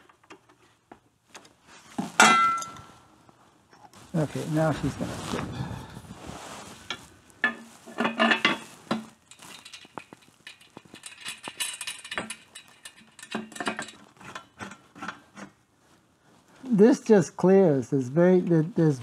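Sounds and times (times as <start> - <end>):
metal exhaust pipe clinking: 2.2 - 2.9
hand tools tapping on fasteners: 7.4 - 15.5.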